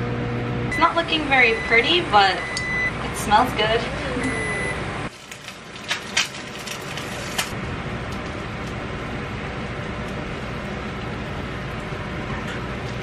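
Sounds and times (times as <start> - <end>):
high electronic beep: 2.4 - 2.9.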